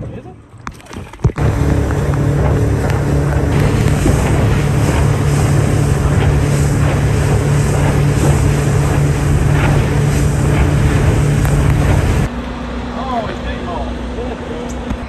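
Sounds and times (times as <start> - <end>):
water rushing along hull: 0.5 - 15.0
wind buffeting microphone: 1.2 - 12.3
motorboat engine drone: 1.2 - 15.0.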